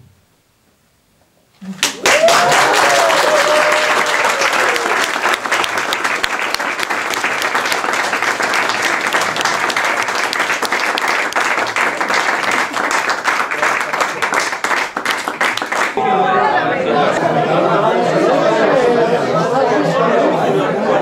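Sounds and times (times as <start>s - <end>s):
crowd applauding: 1.7s - 17.4s
person cheering: 1.9s - 5.0s.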